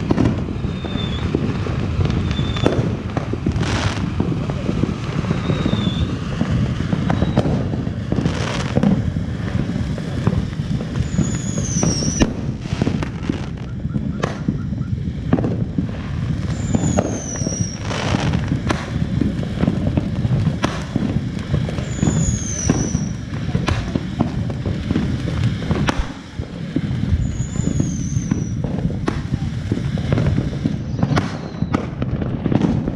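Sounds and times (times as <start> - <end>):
firework fountain crackling hiss: 0.0 - 32.9
short falling whistles: 0.7 - 1.2, 2.3 - 2.6, 11.2 - 12.2, 27.2 - 28.6
sharp pops: 21.8 - 29.4.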